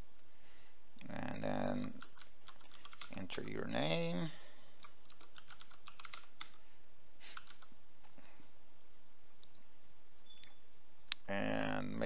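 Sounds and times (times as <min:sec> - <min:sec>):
keyboard typing: 0:01.7 - 0:03.6, 0:04.8 - 0:06.6, 0:07.3 - 0:07.7.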